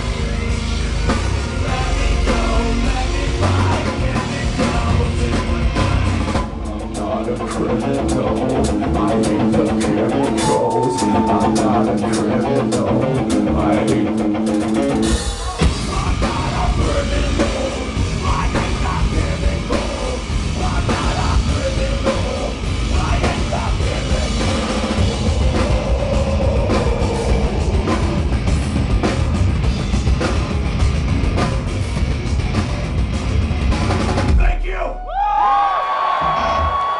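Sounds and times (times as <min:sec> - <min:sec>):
distorted guitars: 0:00.0 - 0:34.7, 0:36.0 - 0:36.9
drum kit: 0:00.0 - 0:36.9.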